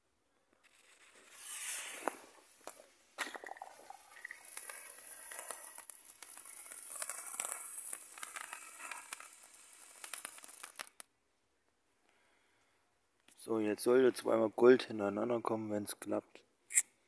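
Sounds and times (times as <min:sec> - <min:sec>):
firework hissing and crackling: 0:00.6 - 0:11.0.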